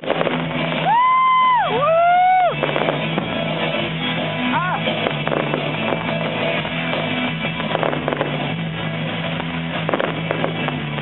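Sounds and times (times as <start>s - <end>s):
fireworks crackling pops: 0.0s - 11.0s
music with held notes: 2.3s - 11.0s.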